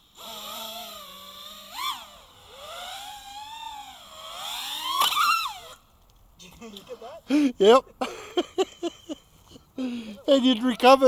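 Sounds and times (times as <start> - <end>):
quadcopter motors whining: 0.0 - 5.9.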